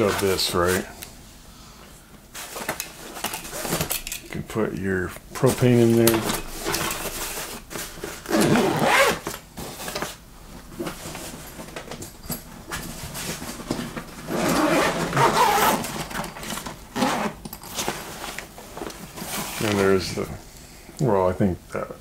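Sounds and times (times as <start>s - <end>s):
zipper rasping on bag: 8.3s - 9.2s, 14.3s - 15.9s, 16.9s - 17.4s.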